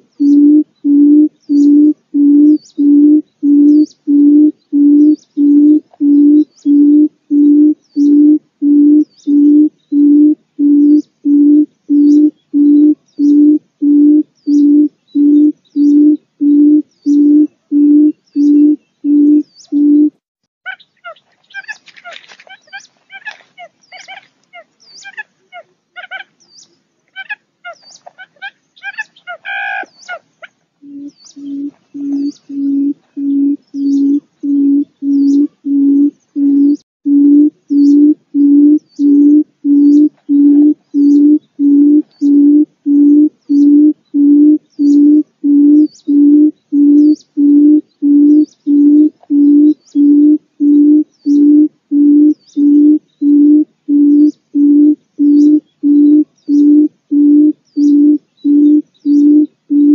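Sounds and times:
quail hooting: 0.0 - 20.1, 20.7 - 26.4, 27.1 - 59.9
high chirps: 30.8 - 59.9.

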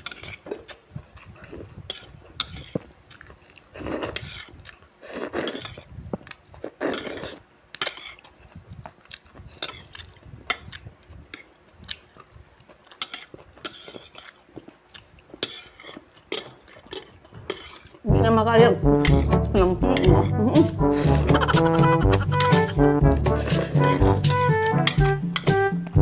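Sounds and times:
chewing: 0.0 - 18.0
noodles slurped: 0.1 - 8.6, 20.8 - 24.5.

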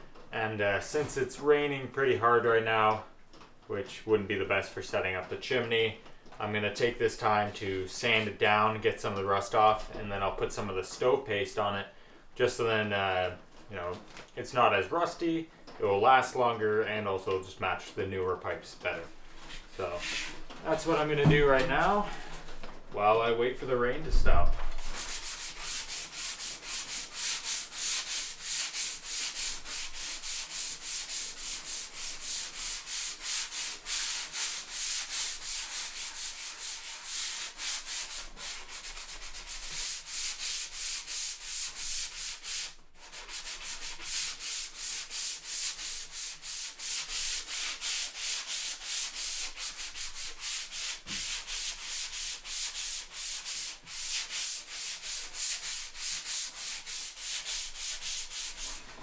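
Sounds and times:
sandpaper scratching metal: 19.5 - 22.1, 24.7 - 59.0.

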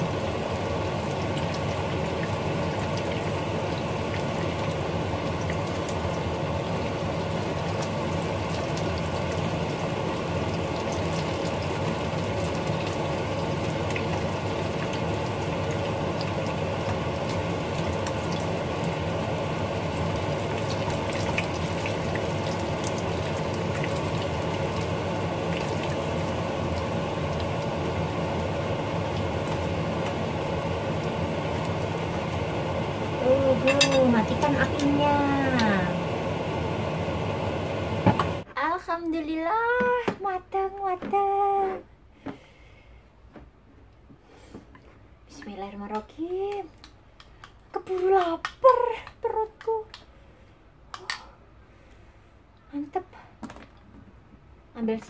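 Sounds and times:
fritters deep-frying in oil: 0.0 - 35.8.

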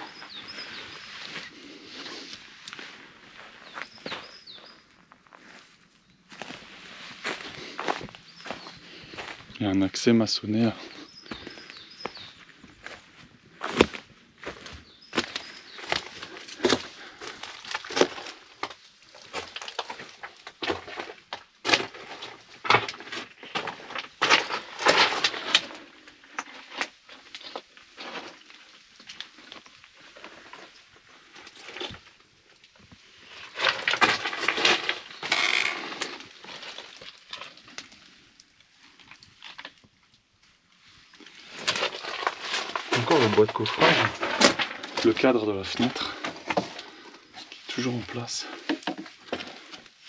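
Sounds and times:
footsteps on gravel and rubble: 0.0 - 50.0
small stones clattering: 15.2 - 32.7, 33.3 - 40.0, 41.1 - 47.0.

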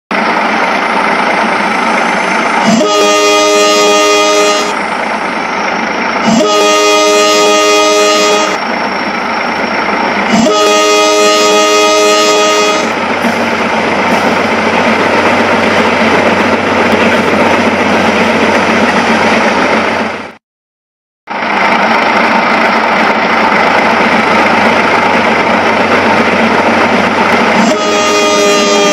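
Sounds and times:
train horn blasts: 2.6 - 4.8, 6.2 - 8.6, 10.3 - 13.0, 27.5 - 28.9.

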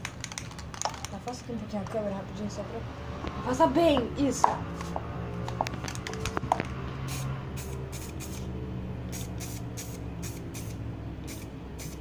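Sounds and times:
spray paint hissing spurts: 7.0 - 12.0.

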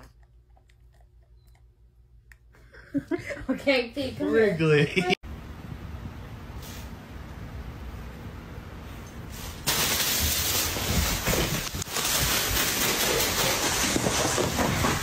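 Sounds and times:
loud crackling rustling noise: 9.3 - 15.0.

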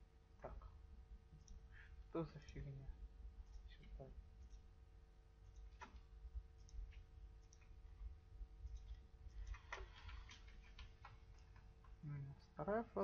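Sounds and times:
low steady hum: 0.0 - 13.0
computer mouse clicks: 1.4 - 1.6, 3.4 - 4.7, 5.4 - 7.8, 8.6 - 12.0.

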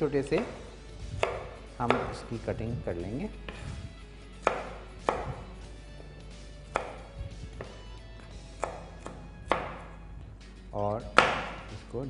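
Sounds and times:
knife chopping on wooden board: 0.2 - 2.4, 3.4 - 3.8, 4.4 - 10.0, 11.0 - 11.7.

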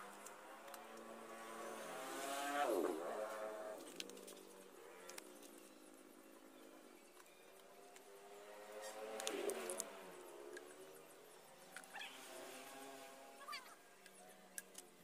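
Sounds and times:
small engine running: 8.1 - 13.7.

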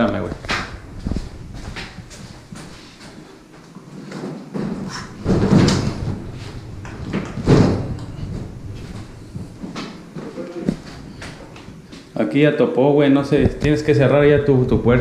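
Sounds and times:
refrigerator scuffing door frame: 4.0 - 12.0
refrigerator knocking: 4.6 - 11.6.

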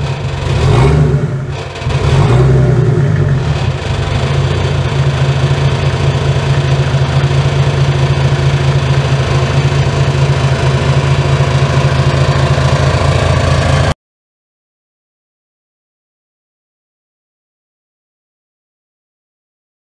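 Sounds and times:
diesel engine idling: 0.0 - 13.9.

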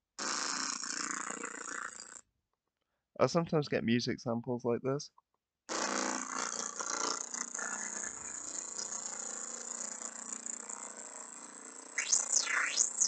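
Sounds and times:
sound sweeping up and down in pitch: 12.0 - 13.0.

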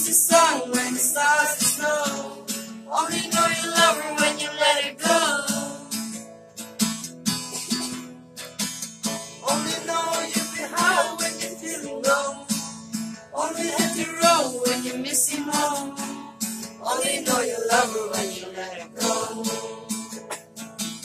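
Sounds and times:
man singing: 0.0 - 5.9, 9.4 - 12.7, 13.3 - 19.9
acoustic guitar strumming: 0.0 - 21.0.

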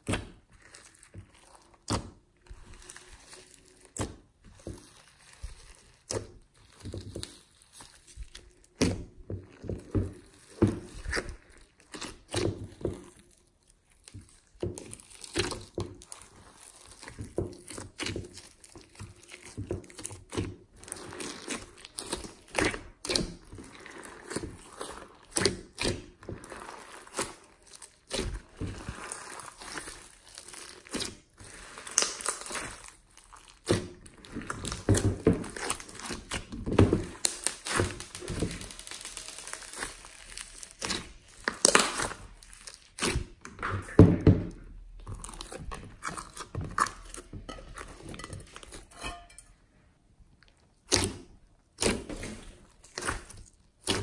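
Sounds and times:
slime squelching: 0.0 - 54.0
foam beads popping and crackling: 26.4 - 33.8, 37.0 - 43.1.

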